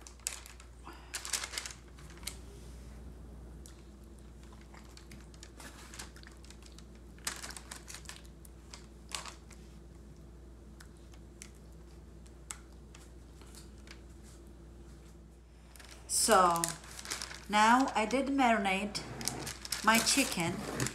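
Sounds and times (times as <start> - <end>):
paper crinkling: 0.0 - 2.4, 4.4 - 9.7, 15.7 - 20.9
steady low hum: 0.0 - 7.3, 8.3 - 20.9.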